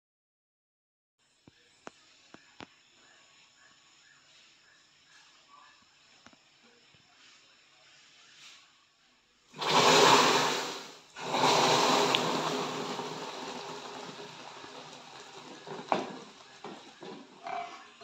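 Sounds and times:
caramel hissing and spitting: 9.6 - 17.4.

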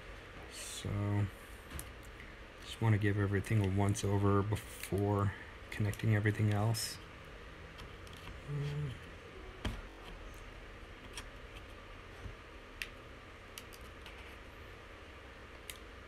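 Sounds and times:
fingers clicking on laptop parts: 12.8 - 14.4.

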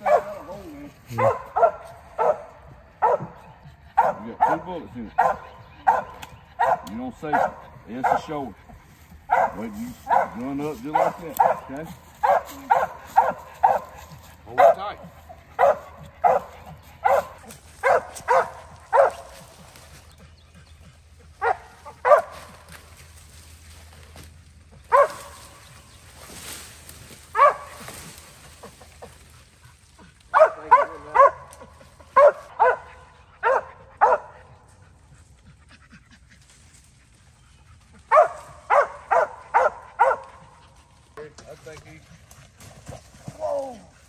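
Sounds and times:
dog barking: 0.0 - 8.6, 9.2 - 19.6, 21.4 - 22.7, 24.9 - 25.5, 27.3 - 27.9, 30.3 - 34.6, 38.1 - 40.6
brush rustling: 4.0 - 44.0.

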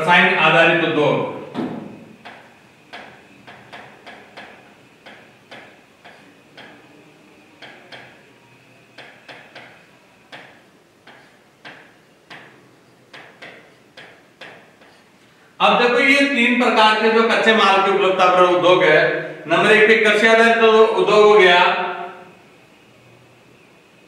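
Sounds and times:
marker tapping and scraping on board: 2.2 - 6.8, 7.6 - 8.2, 8.9 - 15.1.

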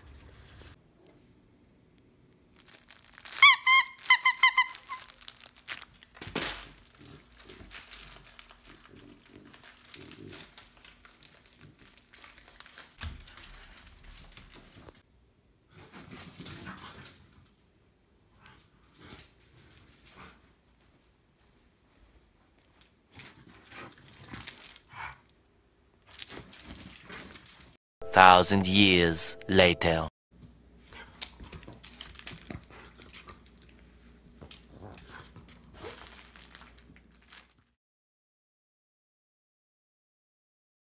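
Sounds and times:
paws and toy scuffing floor: 6.2 - 15.0, 26.1 - 27.8, 30.4 - 37.6
dog playing with toy scuffling: 26.1 - 27.7, 31.0 - 37.6.

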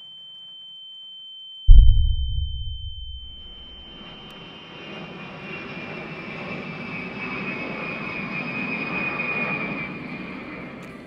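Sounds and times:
high engine whine: 1.7 - 4.2
jet aircraft flying overhead: 4.4 - 11.0.

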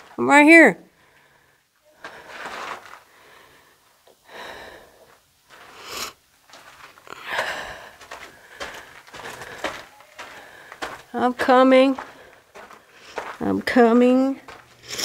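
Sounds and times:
person breathing hard: 0.9 - 6.2, 7.1 - 11.0
footsteps scuffing on loose dirt: 6.4 - 15.0.

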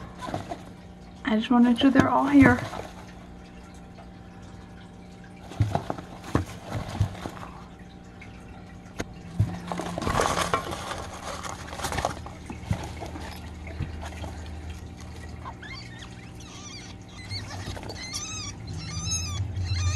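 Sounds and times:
low hum: 0.0 - 19.9
nesting material rustling: 9.5 - 15.8
high squeaky chirps: 15.4 - 19.9.

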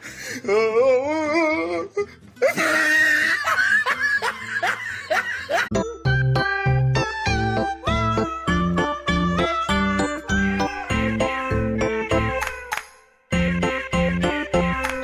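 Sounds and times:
music: 0.0 - 15.0
person laughing: 2.4 - 5.8.

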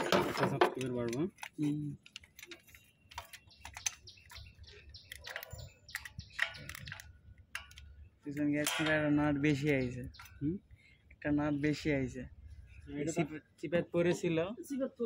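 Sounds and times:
man talking: 0.1 - 2.1, 8.3 - 12.3, 12.9 - 15.0
hand tools tapping on metal: 5.0 - 10.4.

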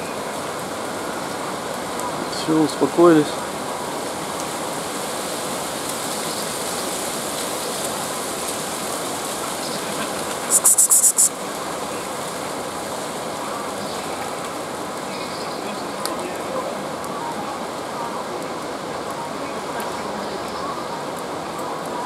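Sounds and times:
outdoor background hiss: 0.0 - 22.0
rapid high-pitched chirps: 10.5 - 11.3.

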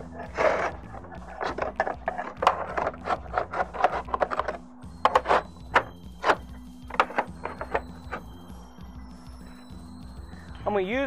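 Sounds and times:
slate scraping and clacking: 0.1 - 8.2.

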